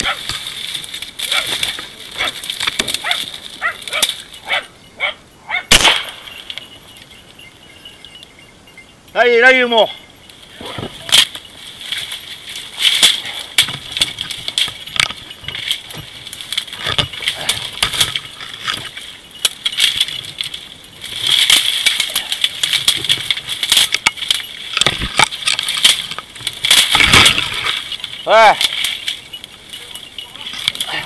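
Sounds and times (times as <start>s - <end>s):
cane stalks rustling and snapping: 0.0s - 4.7s, 10.2s - 31.0s
light clinking: 9.9s - 31.0s.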